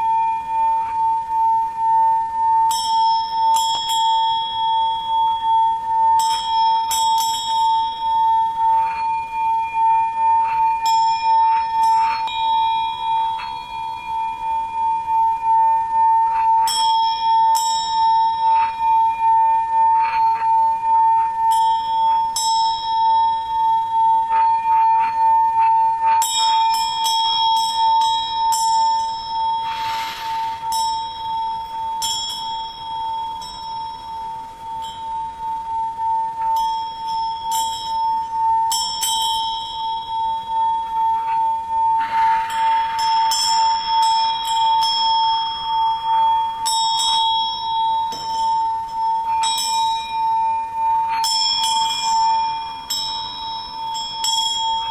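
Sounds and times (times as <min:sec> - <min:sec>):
singing bowl humming: 0:00.0 - 0:54.9
small high-pitched bells ringing: 0:00.0 - 0:54.9
soft whoosh: 0:29.6 - 0:31.1.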